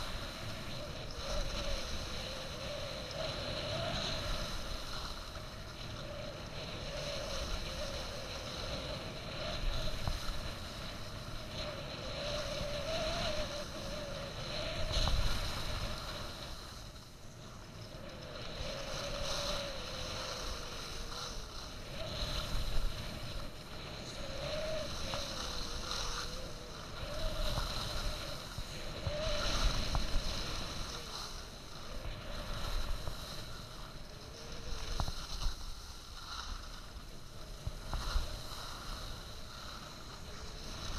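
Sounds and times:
skis hissing on snow: 0:00.0 - 0:17.5, 0:18.4 - 0:40.9
wind on microphone: 0:00.0 - 0:40.9
faint wavering whistle: 0:12.1 - 0:15.3.

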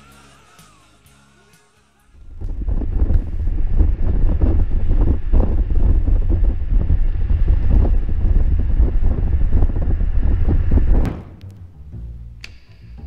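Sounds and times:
wind buffeting microphone: 0:02.2 - 0:11.1.

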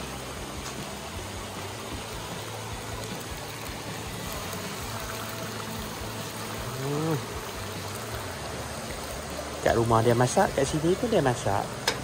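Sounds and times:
steady rushing hiss: 0:00.0 - 0:12.0
person making vocal sound: 0:06.6 - 0:07.3.

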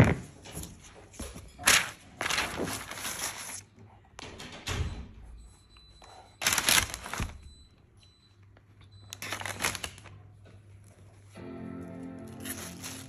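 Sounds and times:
paper packaging rustling: 0:01.1 - 0:03.7, 0:06.4 - 0:07.5, 0:09.1 - 0:10.2, 0:12.2 - 0:13.0.

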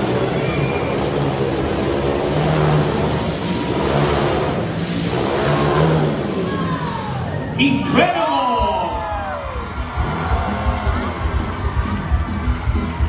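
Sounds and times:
motorcycle engines revving: 0:00.0 - 0:08.2.

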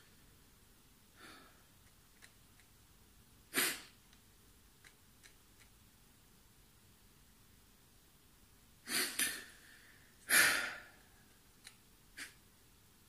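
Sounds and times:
faint clicks: 0:04.8 - 0:05.8, 0:11.6 - 0:12.4
sharp breath through the nose: 0:08.9 - 0:11.0
man breathing: 0:08.9 - 0:11.2.

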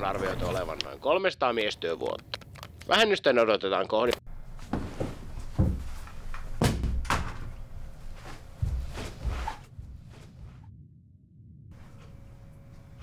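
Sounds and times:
heavy footsteps: 0:04.4 - 0:10.7
door banging: 0:04.7 - 0:07.6.

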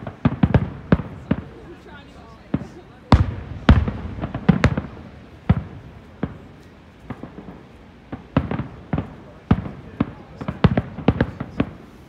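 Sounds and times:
firework shells bursting: 0:02.5 - 0:11.9.

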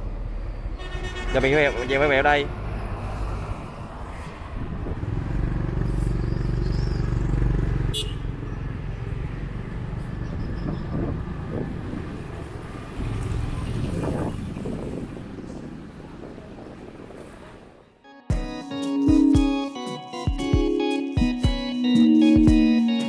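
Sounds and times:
road noise: 0:00.0 - 0:18.2.

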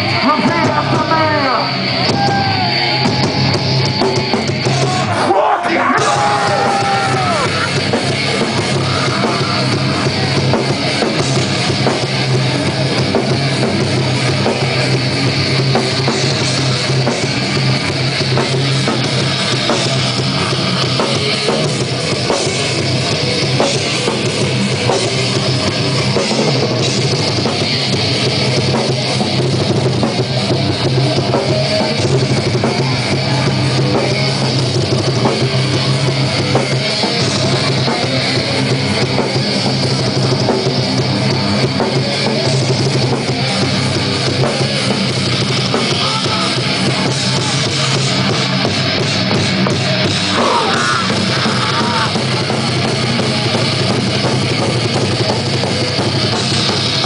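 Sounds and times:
heavy rock band playing: 0:00.0 - 0:57.0.

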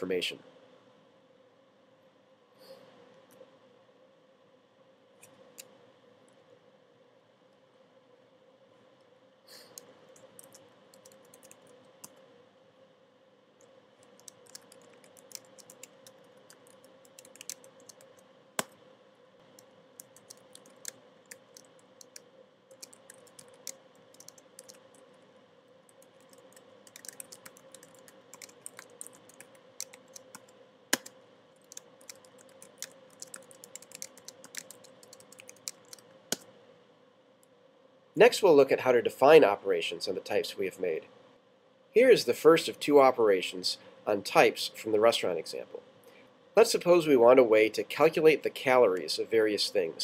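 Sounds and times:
faint steady hum: 0:00.0 - 0:50.0
keyboard typing: 0:09.7 - 0:12.2, 0:14.0 - 0:18.7, 0:19.6 - 0:25.1, 0:25.9 - 0:36.4.

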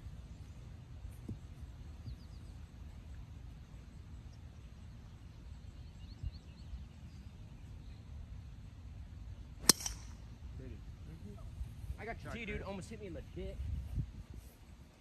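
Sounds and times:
wind rumble on microphone: 0:00.0 - 0:09.3, 0:10.1 - 0:15.0
faint bird chirps: 0:01.2 - 0:03.2, 0:03.9 - 0:08.2.

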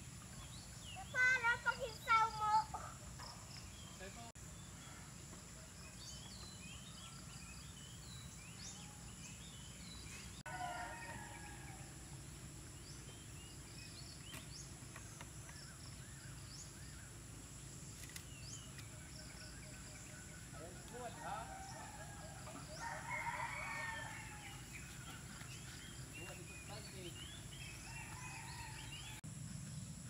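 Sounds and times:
small birds chirping: 0:00.0 - 0:11.7, 0:12.3 - 0:30.0
insect drone: 0:25.8 - 0:30.0.

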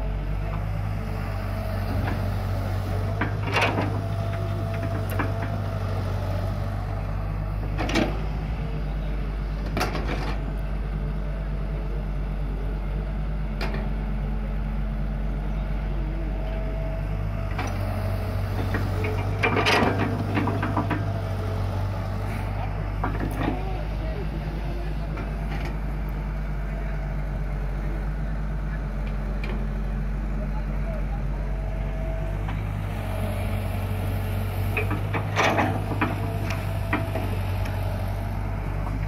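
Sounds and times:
excavator diesel engine running: 0:00.0 - 0:39.0
excavator bucket clanking: 0:03.0 - 0:05.8, 0:07.7 - 0:08.3, 0:09.6 - 0:10.5, 0:17.4 - 0:21.8, 0:22.6 - 0:26.0, 0:33.8 - 0:39.0.

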